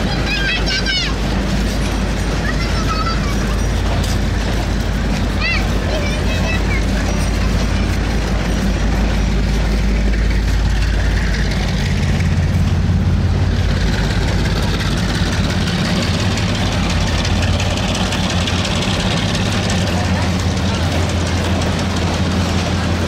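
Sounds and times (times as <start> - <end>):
diesel engine drone: 0.0 - 23.0
train coaches running on rails: 0.0 - 23.0.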